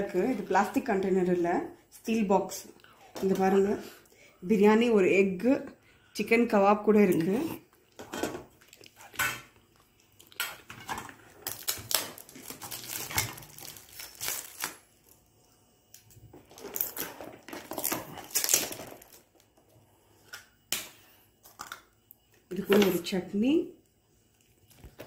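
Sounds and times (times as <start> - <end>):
plastic wrap crinkling: 10.0 - 15.2, 16.3 - 19.5.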